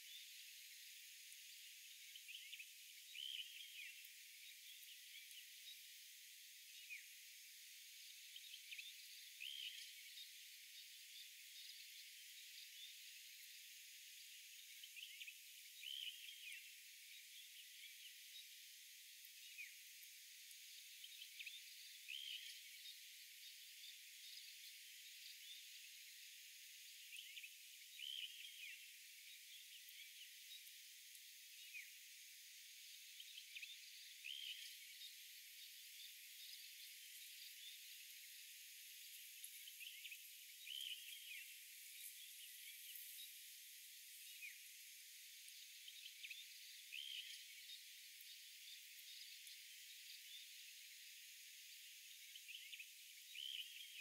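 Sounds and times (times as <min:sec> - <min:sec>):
steady high hiss: 0:18.3 - 0:54.0.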